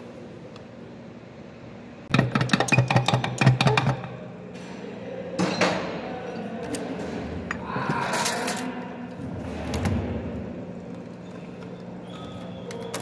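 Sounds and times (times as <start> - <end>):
hand tools clicking and knocking: 2.1 - 4.1.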